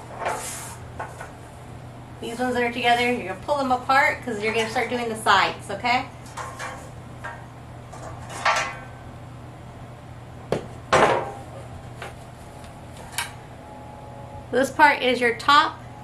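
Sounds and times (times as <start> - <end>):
sheet steel panel scraping: 0.0 - 0.8.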